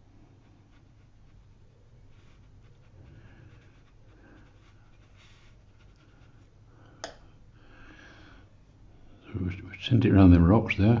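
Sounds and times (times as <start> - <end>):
paintbrush swishing on paper: 0.3 - 6.6.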